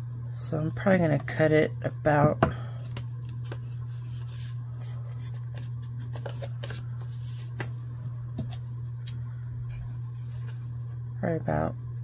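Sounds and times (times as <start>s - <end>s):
steady low hum: 0.0s - 12.0s
paper rustling and crinkling: 2.8s - 7.7s, 9.7s - 10.8s.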